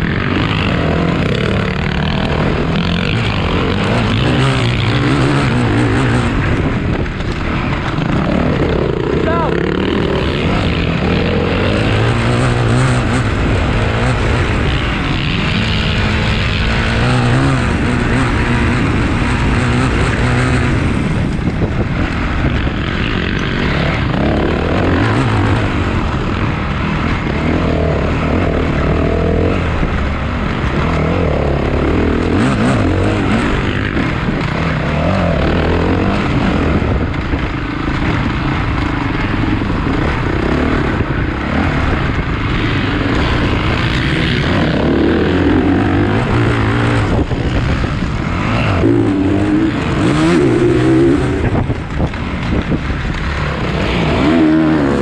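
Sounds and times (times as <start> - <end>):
motocross bikes racing: 0.0 - 55.0.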